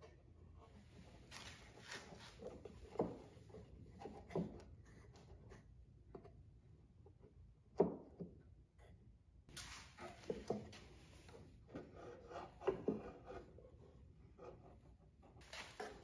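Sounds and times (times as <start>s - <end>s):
wooden knocks and clicks: 7.7s - 8.4s, 10.0s - 10.9s
pencil scratching on wood: 11.2s - 16.0s.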